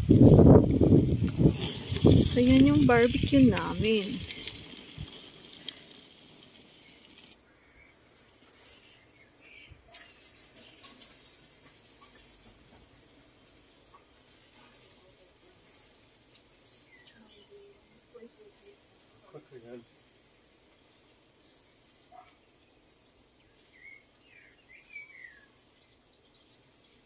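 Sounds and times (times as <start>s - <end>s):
barbecue grill sizzling: 0.0s - 27.0s
bird chirps: 8.6s - 12.4s, 22.1s - 27.0s.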